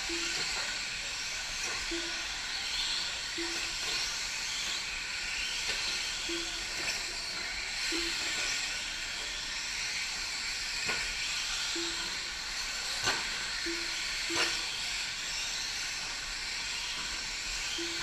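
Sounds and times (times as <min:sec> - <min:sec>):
rc truck motors whining: 0:00.0 - 0:18.0
short low beeps: 0:00.1 - 0:00.6, 0:01.9 - 0:02.3, 0:03.4 - 0:03.8, 0:06.2 - 0:06.8, 0:07.9 - 0:08.5, 0:11.8 - 0:12.2, 0:13.6 - 0:14.7, 0:17.7 - 0:18.0.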